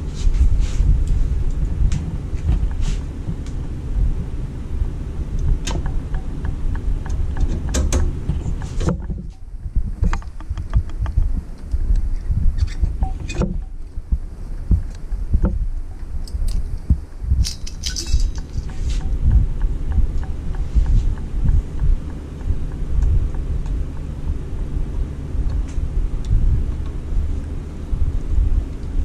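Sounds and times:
low rumbling and bumping: 0.0 - 29.0
screwdriver and screws clinking: 17.4 - 18.8.

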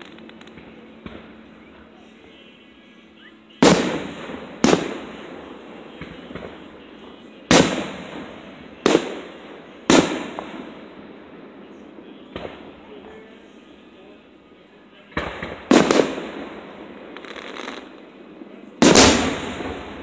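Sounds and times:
firework booms echoing: 3.6 - 13.4, 15.1 - 20.0.

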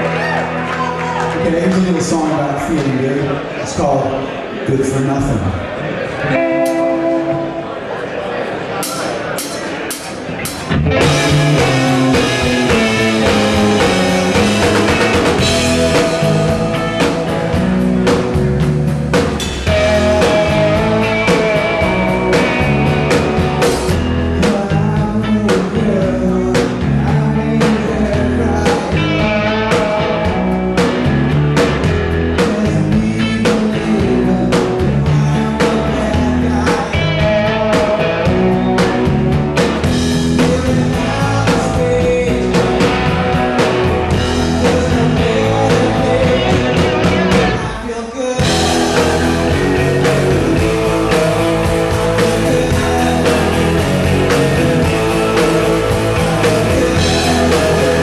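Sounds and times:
live rock band playing: 0.0 - 5.6, 6.2 - 58.0
man singing: 10.9 - 18.6, 19.6 - 31.0, 32.2 - 39.2, 40.0 - 58.0.

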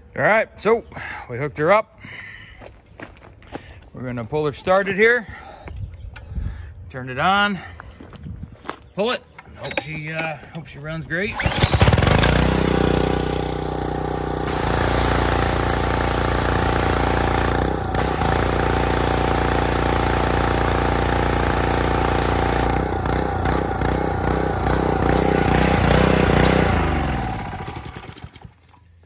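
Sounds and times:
engine spinning down: 11.3 - 28.6
pressure washer engine running: 11.3 - 28.7.

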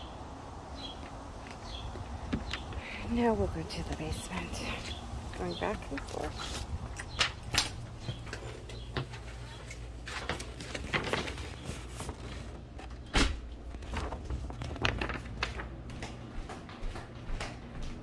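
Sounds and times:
footsteps in a house: 6.0 - 18.0.

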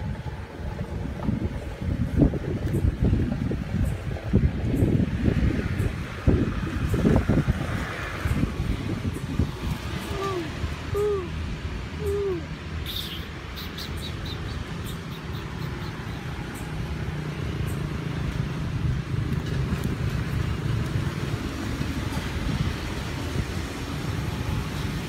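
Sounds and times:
low outdoor rumble: 0.0 - 25.0.

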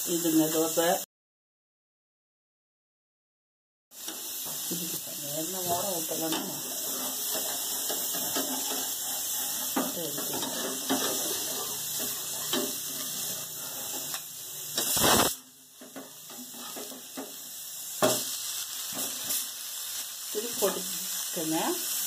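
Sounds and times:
batter sizzling in oil: 0.0 - 1.1, 3.9 - 22.0
metal spatula scraping: 4.0 - 17.4.

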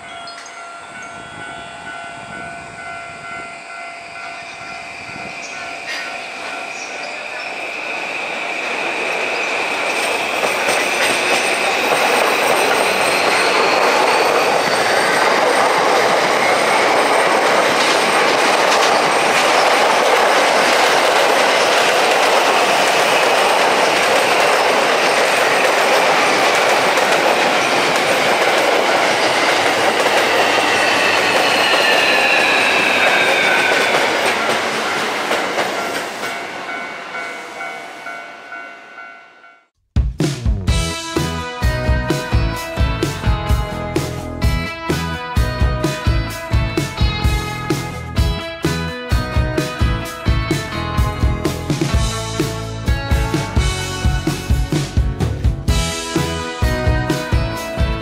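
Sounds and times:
train wheels rushing on rails: 0.0 - 39.1, 40.6 - 58.0
high squealing tones: 0.3 - 20.8, 22.6 - 36.3.

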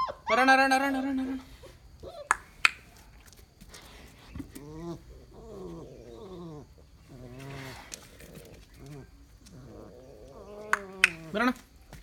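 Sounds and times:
dog whining: 0.0 - 0.5.

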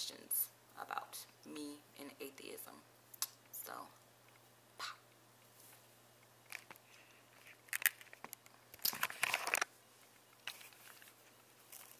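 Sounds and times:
faint steady hum: 0.0 - 11.9
camera handling rustles and clicks: 7.4 - 9.7, 10.4 - 11.9.

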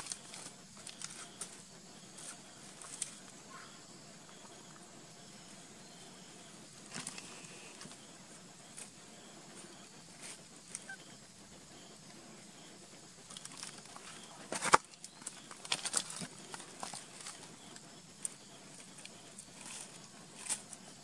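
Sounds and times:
infant monkey distress cries: 10.8 - 11.3.

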